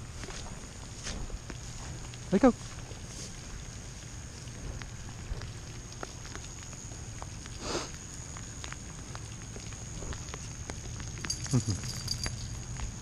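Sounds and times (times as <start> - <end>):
footsteps through wet grass: 0.0 - 13.0
steady hiss: 0.0 - 13.0.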